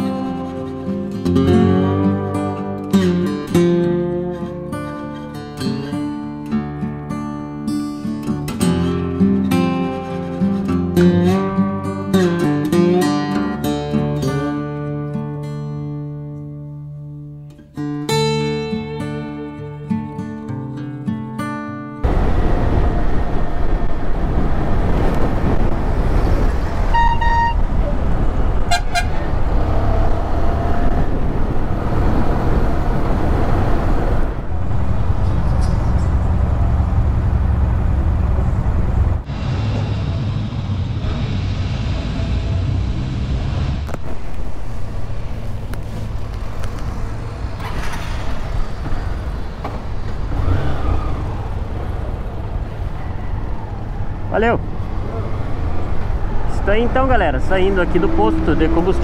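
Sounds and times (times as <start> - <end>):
motorcycle engine: 22.0 - 56.5, 57.6 - 59.0
wind noise: 22.0 - 59.0
different-pitched horn: 26.9 - 27.6, 28.6 - 29.3
vehicle horn beeps: 26.9 - 27.7, 28.6 - 29.2.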